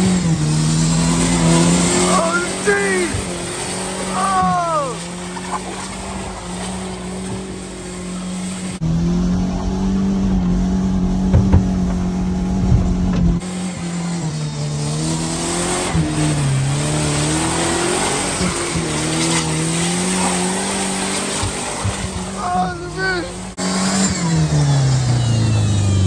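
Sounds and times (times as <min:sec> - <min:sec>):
pickup engine revving: 0:00.0 - 0:26.0
knocks and thuds of truck bouncing: 0:11.0 - 0:13.4.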